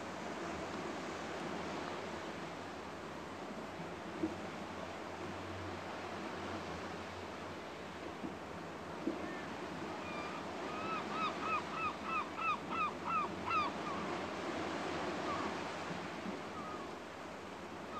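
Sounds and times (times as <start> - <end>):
gull calling: 9.3 - 14.1.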